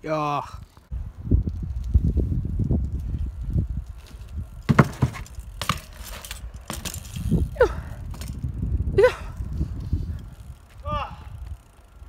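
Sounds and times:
bike tyre rumble on asphalt: 0.1s - 12.0s
bike clacks and knocks: 4.0s - 7.3s.

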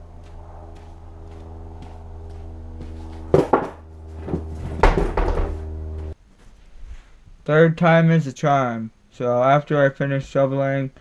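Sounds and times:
steady low hum: 0.0s - 7.4s.

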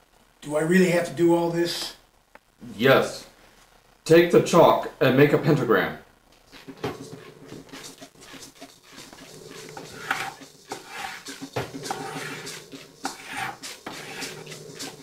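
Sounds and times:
chalk scraping on wood: 6.5s - 15.0s
objects clattering: 6.5s - 15.0s
faint steady drone: 6.8s - 15.0s.

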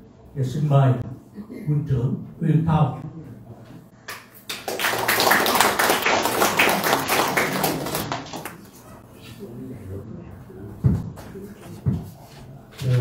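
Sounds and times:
audience applauding: 4.1s - 8.7s.

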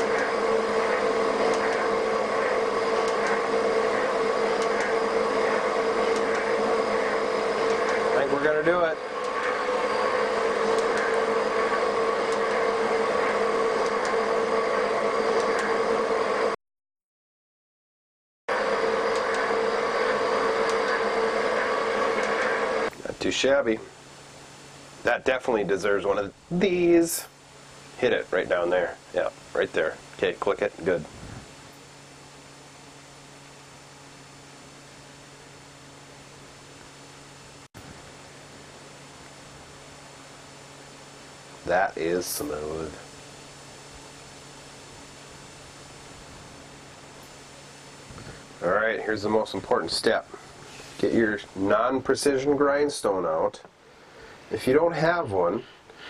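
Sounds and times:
low electrical hum: 0.0s - 16.6s, 18.6s - 56.0s
metal shaper machine hum: 0.0s - 16.6s, 18.5s - 23.0s.

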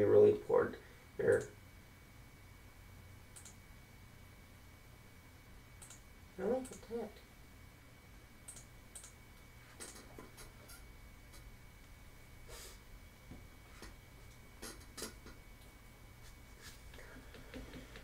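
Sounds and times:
steady low hum: 0.0s - 18.0s
faint mouse clicks: 3.4s - 3.6s, 8.5s - 9.2s.

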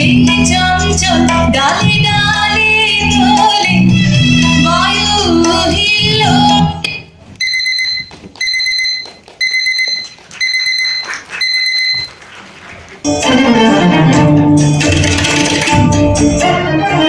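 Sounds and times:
music: 0.0s - 6.9s, 13.0s - 17.0s
electronic alarm beeping: 6.9s - 12.2s.

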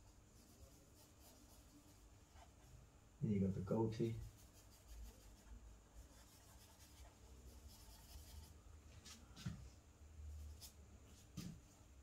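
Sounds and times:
charcoal scratching on paper: 0.3s - 2.6s, 4.2s - 8.6s
soft bump: 11.3s - 11.7s.

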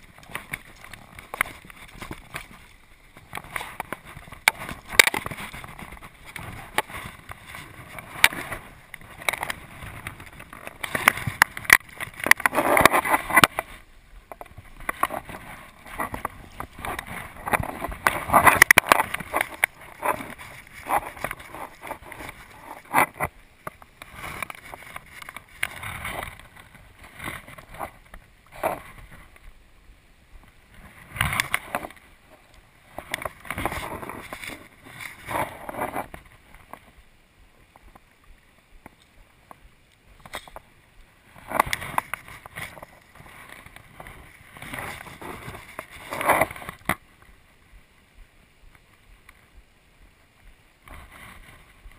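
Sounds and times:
rustling of sleeves and gear: 0.0s - 13.9s, 14.5s - 29.5s, 40.1s - 47.8s, 50.4s - 51.9s.

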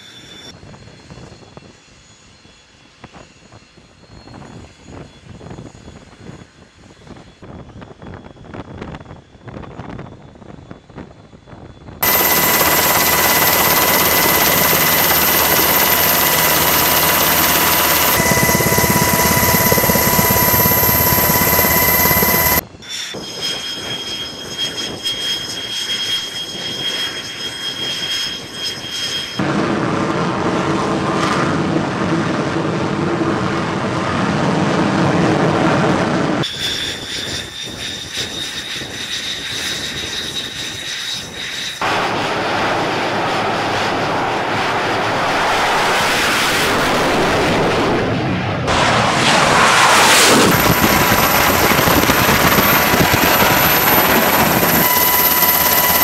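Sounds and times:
jet turbine engines whining: 12.0s - 22.6s, 41.7s - 56.0s.

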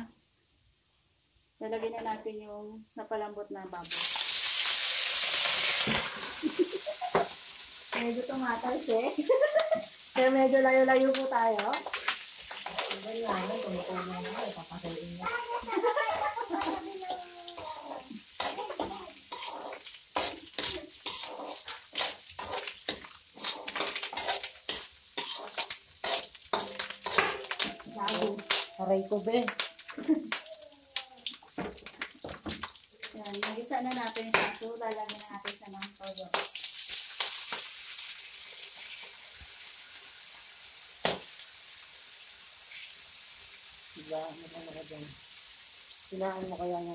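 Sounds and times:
meat sizzling in a wok: 3.7s - 46.9s
metal ladle scraping a pan: 11.8s - 28.8s.

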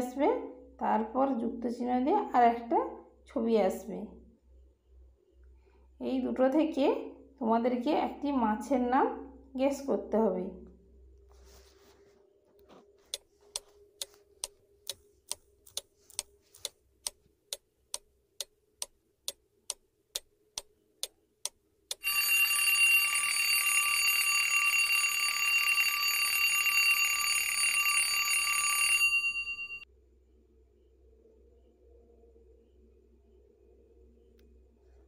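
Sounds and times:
clock ticking: 13.1s - 22.2s
alarm clock bell ringing: 22.0s - 29.9s.

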